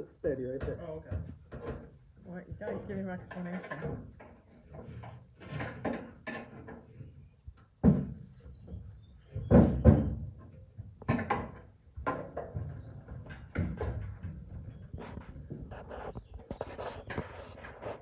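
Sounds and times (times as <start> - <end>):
metal knocks and clunks: 0.5 - 2.0, 2.6 - 7.0, 7.8 - 15.7.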